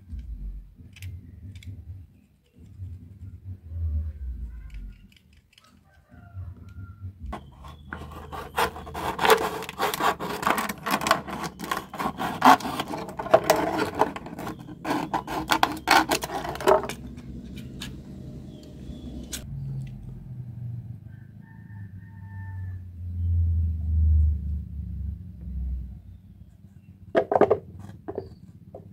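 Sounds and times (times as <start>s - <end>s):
knife sawing plastic bottle: 7.4s - 17.2s.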